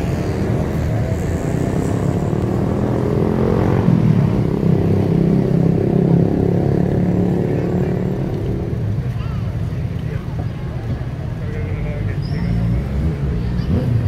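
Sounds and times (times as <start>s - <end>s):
vehicle engine running close: 0.0s - 14.0s.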